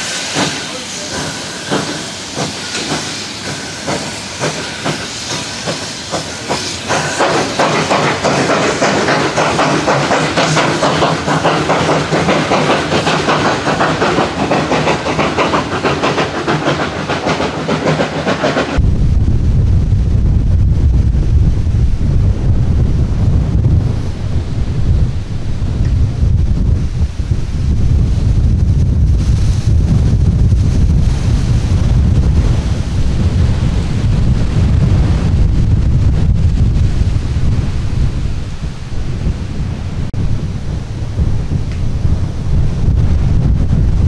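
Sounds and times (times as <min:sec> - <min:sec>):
steam hiss: 0:00.0 - 0:18.8, 0:26.7 - 0:35.4
steam locomotive chuffing: 0:00.0 - 0:19.0
wind rumble on microphone: 0:18.8 - 0:44.0.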